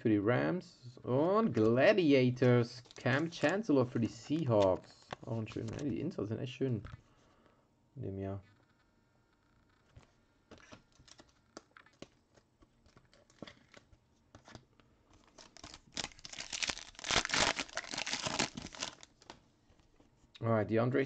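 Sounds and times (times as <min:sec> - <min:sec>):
wrapper crinkles and clicks: 0:10.5 - 0:19.4
wrapper tearing with dense crinkling: 0:10.6 - 0:12.1, 0:15.2 - 0:19.3.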